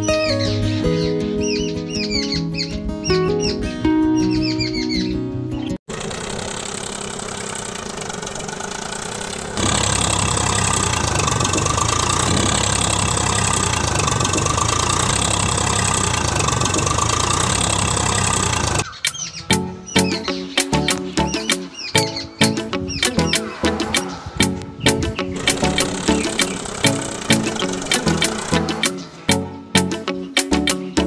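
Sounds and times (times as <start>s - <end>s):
tractor engine running: 5.9s - 30.0s.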